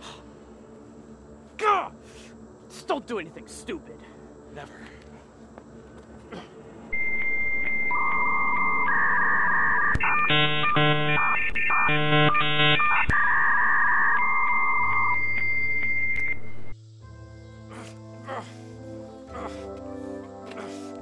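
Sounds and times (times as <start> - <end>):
pulsing chord-like tones: 6.8 - 17.7
synthesized electronic beeps: 6.9 - 16.8.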